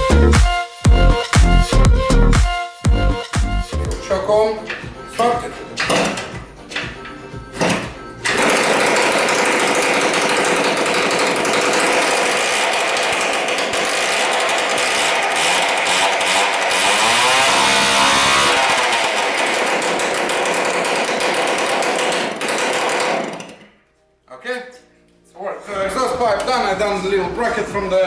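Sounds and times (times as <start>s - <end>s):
small petrol engine running: 8.2s - 23.7s.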